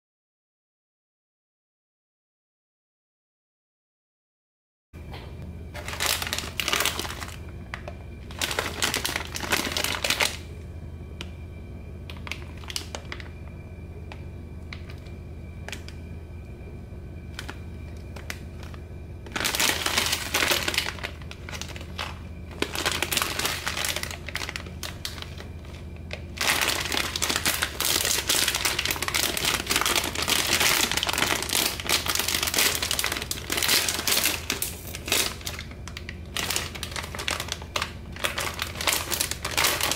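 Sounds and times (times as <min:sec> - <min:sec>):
snack bag crinkling: 0:05.8 - 0:10.5, 0:12.1 - 0:13.4, 0:17.3 - 0:39.9.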